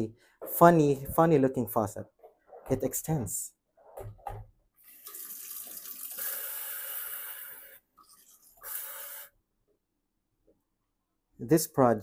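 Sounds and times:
faucet running water: 0:04.8 - 0:09.3.

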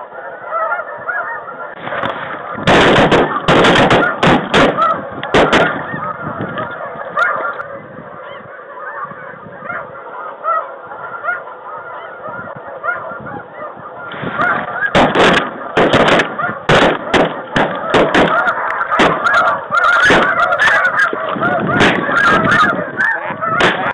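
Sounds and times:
geese honking: 0:00.0 - 0:23.9
shotgun blasts: 0:02.6 - 0:05.8, 0:14.9 - 0:18.4.

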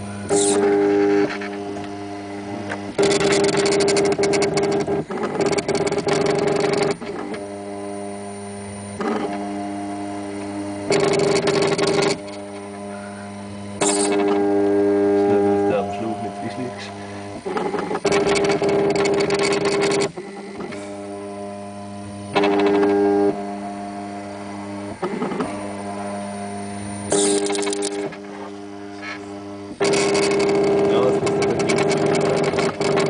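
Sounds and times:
low hum: 0:00.0 - 0:33.0
printer motors whining: 0:00.0 - 0:33.0
rapid clicking: 0:02.6 - 0:07.5, 0:08.8 - 0:12.9, 0:13.6 - 0:15.6, 0:17.2 - 0:21.1, 0:22.2 - 0:23.5, 0:27.0 - 0:28.3, 0:29.7 - 0:33.0.

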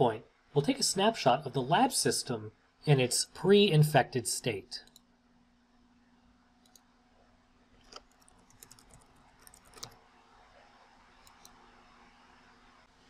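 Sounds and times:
faint steady hum: 0:00.0 - 0:13.0
computer mouse clicks: 0:04.8 - 0:05.1, 0:06.6 - 0:06.9, 0:07.8 - 0:10.0, 0:11.2 - 0:11.7
keyboard typing: 0:07.8 - 0:10.0, 0:11.2 - 0:11.6.

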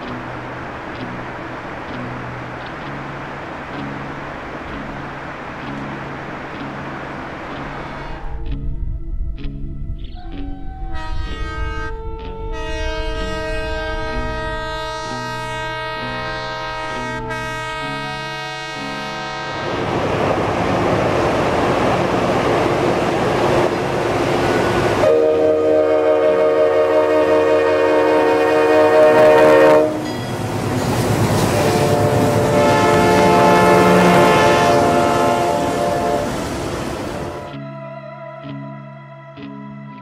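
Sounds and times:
locomotive rumbling: 0:00.0 - 0:37.6
locomotive air horn blasts: 0:10.8 - 0:20.0, 0:24.4 - 0:37.5.

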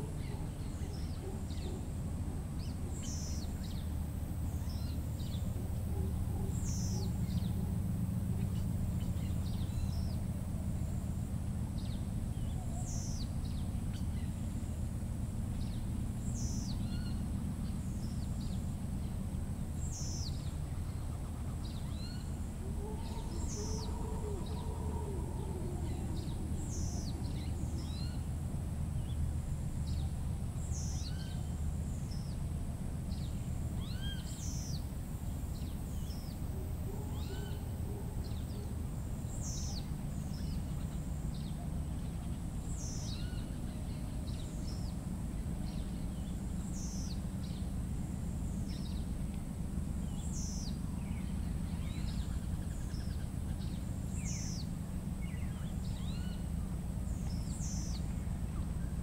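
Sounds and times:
birds calling: 0:00.0 - 0:32.5, 0:33.1 - 0:59.0
low steady rumble: 0:00.0 - 0:59.0.

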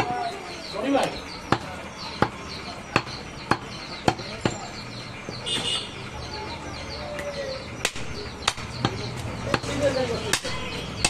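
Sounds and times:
cleaver chopping meat on wood: 0:01.5 - 0:02.4, 0:03.0 - 0:04.6, 0:07.8 - 0:11.0.

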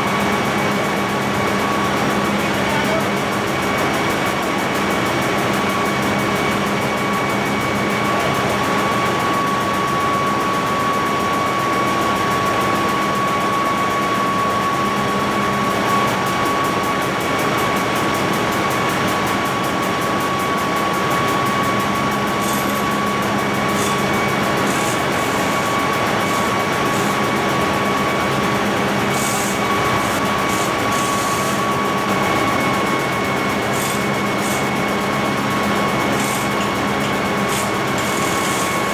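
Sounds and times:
constant machinery whine: 0:00.0 - 0:38.9
engine-room machinery drone: 0:00.0 - 0:38.9.

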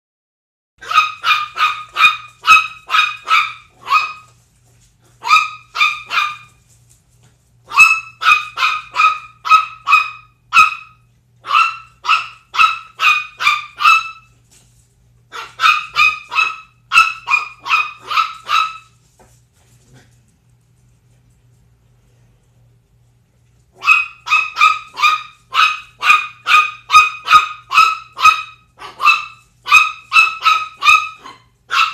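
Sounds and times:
puppy yipping: 0:00.8 - 0:04.4, 0:05.2 - 0:06.6, 0:07.7 - 0:14.3, 0:15.3 - 0:19.0, 0:23.8 - 0:31.9.

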